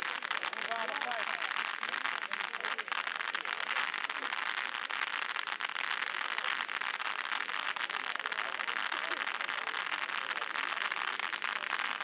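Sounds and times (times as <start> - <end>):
firework crackling: 0.0 - 12.0
firework fountain hissing: 0.0 - 12.0.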